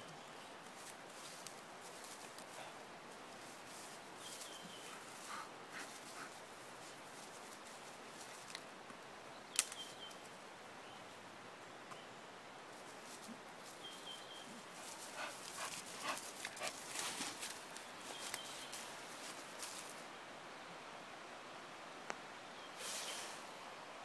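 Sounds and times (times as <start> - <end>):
rustling of dry leaves and twigs: 0.0 - 10.4, 12.6 - 20.3
twig snapping: 9.5 - 9.8.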